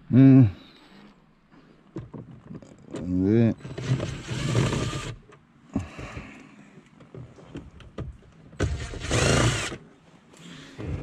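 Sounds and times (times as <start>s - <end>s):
cordless drill motor running: 3.8s - 5.2s, 8.6s - 9.8s.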